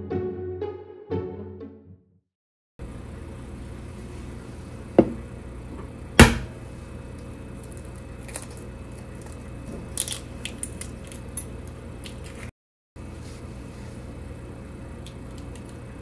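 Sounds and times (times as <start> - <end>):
eggshell crackling: 7.1 - 12.5.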